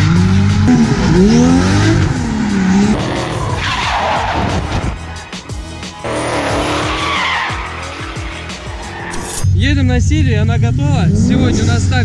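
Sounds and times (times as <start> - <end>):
car engines revving: 0.0 - 9.4, 10.4 - 12.0
music: 0.0 - 12.0
tyres squealing: 2.9 - 9.4.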